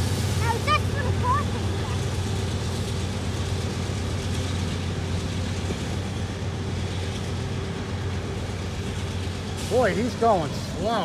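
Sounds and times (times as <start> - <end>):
freight train wheels rolling on rails: 0.0 - 11.0.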